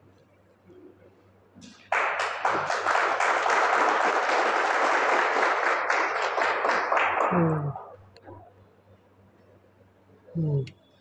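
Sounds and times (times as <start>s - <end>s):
crowd applauding: 1.6s - 8.0s.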